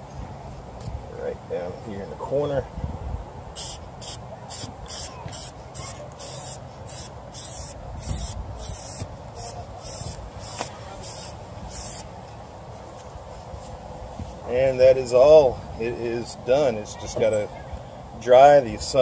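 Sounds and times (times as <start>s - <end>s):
aerosol can spraying: 3.6s - 12.1s.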